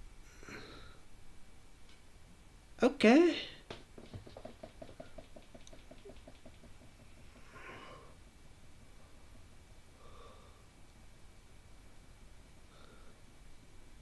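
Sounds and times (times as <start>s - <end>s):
faint breath: 0.2s - 1.1s, 7.4s - 8.2s, 9.0s - 10.8s, 12.6s - 13.3s.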